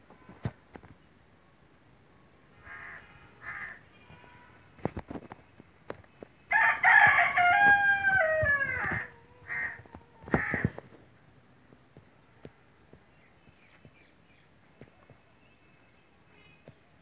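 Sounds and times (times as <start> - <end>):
rooster crowing: 6.5 - 9.8.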